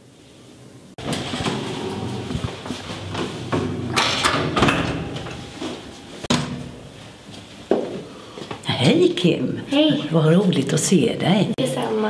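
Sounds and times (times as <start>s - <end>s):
lift doors rattling and clunking: 1.0s - 7.3s
steady low hum: 1.0s - 8.6s.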